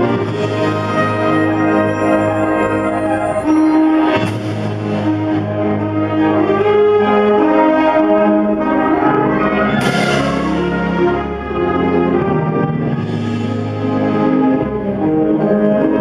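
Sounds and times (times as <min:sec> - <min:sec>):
wind ensemble playing chords: 0:00.0 - 0:16.0
cymbal crash: 0:09.8 - 0:10.9.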